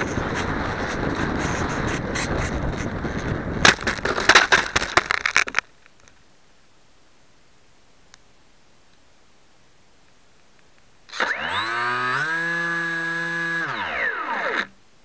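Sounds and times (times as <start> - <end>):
crash knocks and cracks: 3.6 - 5.6
faint hiss: 5.7 - 11.1
motorised model rushing: 11.1 - 14.8.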